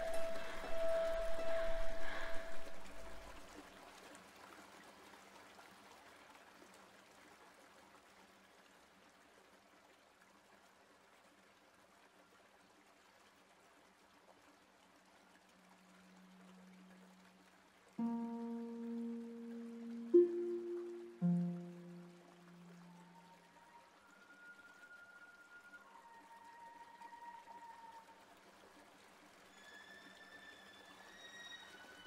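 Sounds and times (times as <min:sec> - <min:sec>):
low hum: 0:00.0 - 0:03.4, 0:18.0 - 0:23.7
ringing musical note: 0:00.0 - 0:03.4, 0:18.0 - 0:23.5
flowing water: 0:00.0 - 0:32.0.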